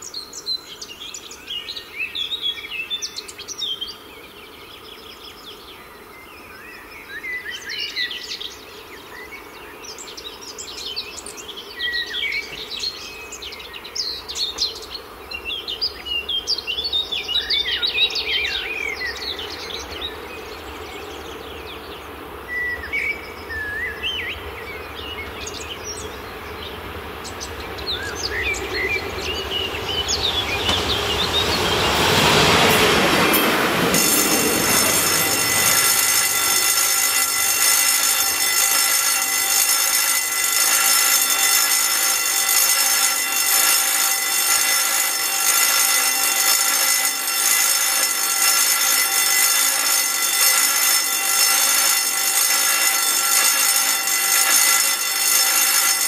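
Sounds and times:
diesel railcar passing: 0:19.0 - 0:54.2
crossing warning bell buzzing: 0:22.3 - 0:56.0.

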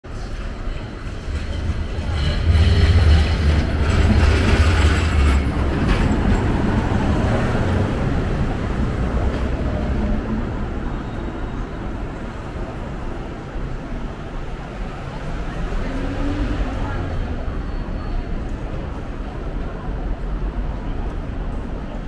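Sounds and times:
tram rumbling past on rails: 0:00.1 - 0:22.0.

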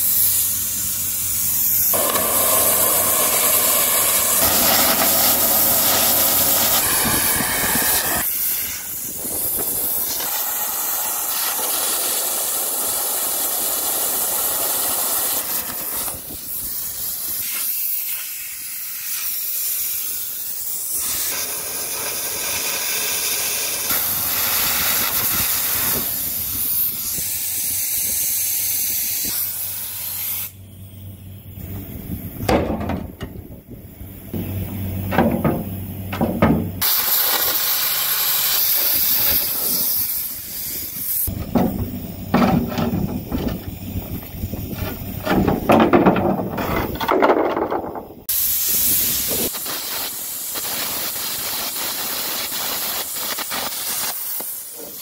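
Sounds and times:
compressed air jet hissing: 0:00.0 - 0:31.0, 0:34.2 - 0:46.0, 0:48.3 - 0:55.0
arc spitting crackle: 0:01.2 - 0:27.5, 0:36.8 - 0:41.5, 0:48.3 - 0:55.0.

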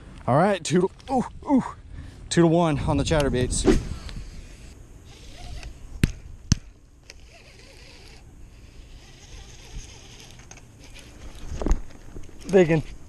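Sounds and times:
faint rustle: 0:07.1 - 0:13.0.

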